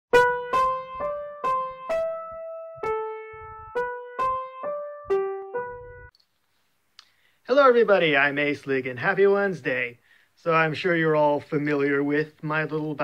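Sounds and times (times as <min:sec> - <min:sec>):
electric keyboard jingle: 0:00.1 - 0:06.1.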